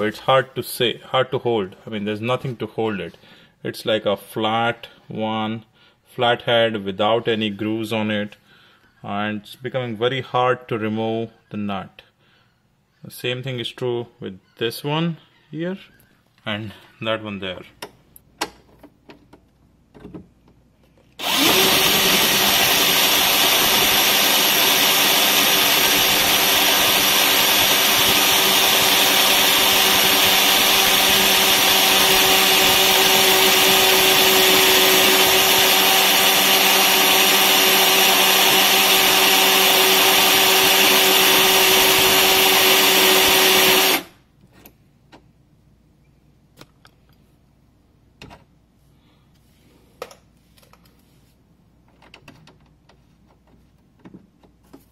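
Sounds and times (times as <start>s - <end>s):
cordless drill boring into steel: 21.2s - 44.2s.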